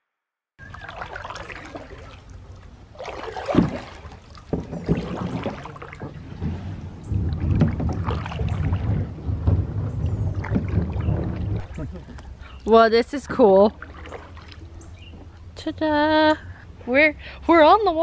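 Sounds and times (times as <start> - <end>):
paddle splashing through water: 0.6 - 15.3
low rumble: 6.1 - 14.5.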